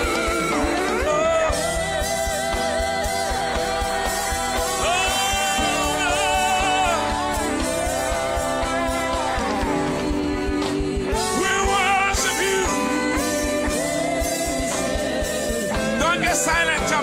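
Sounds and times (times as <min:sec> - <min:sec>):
backing singer: 0:00.0 - 0:17.0
band playing steady beat: 0:00.0 - 0:17.0
man singing long sliding notes: 0:04.7 - 0:07.9.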